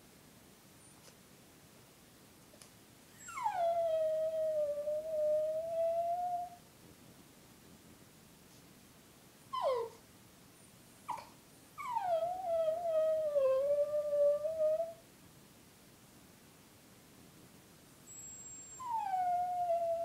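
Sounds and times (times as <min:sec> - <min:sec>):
dog howling: 0:18.8 - 0:20.0.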